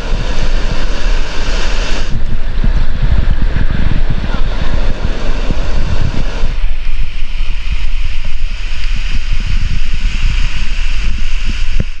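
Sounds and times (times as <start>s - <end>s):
waves washing on shore: 0.0s - 12.0s
wind buffeting microphone: 0.0s - 12.0s.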